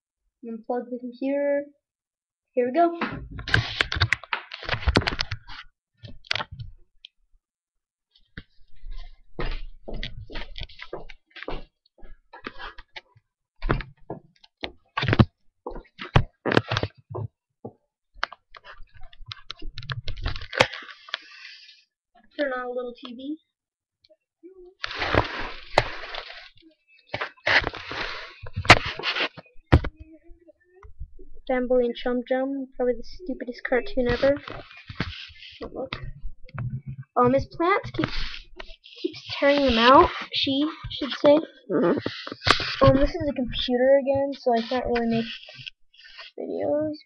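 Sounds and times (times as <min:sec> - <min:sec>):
computer handling noise: 0:18.2 - 0:21.3
rubbing on laptop microphone: 0:24.8 - 0:30.2, 0:33.6 - 0:47.0.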